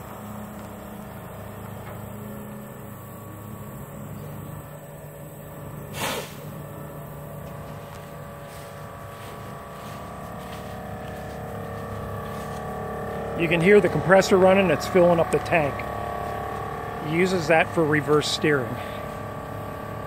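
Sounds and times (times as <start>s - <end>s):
air compressor running: 0.0s - 20.0s
short hiss of air: 5.9s - 6.5s.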